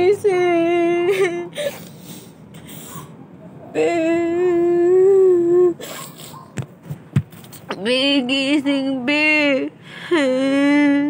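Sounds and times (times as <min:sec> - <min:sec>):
woman crying and wailing: 0:00.7 - 0:02.0, 0:10.0 - 0:11.0.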